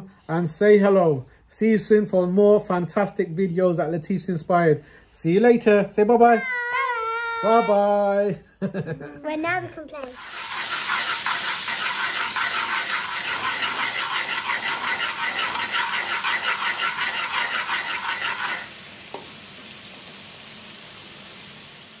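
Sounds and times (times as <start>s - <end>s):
food sizzling in a pan: 10.0s - 22.0s
utensil scraping pan: 10.1s - 18.7s.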